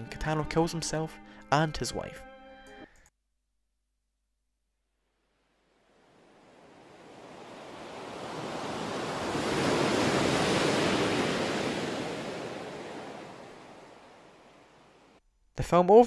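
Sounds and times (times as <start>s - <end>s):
ocean surf washing onto beach: 5.9s - 15.2s.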